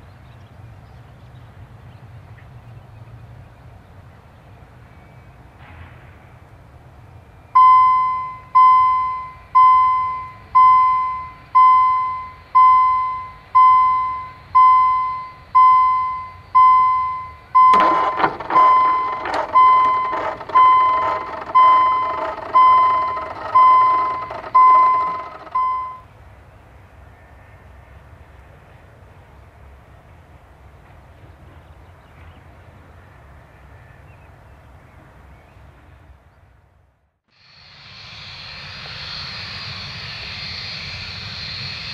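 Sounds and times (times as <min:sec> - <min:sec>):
electronic alarm tone ringing: 0:07.6 - 0:26.0
clicks and rattling clatter: 0:17.6 - 0:25.6.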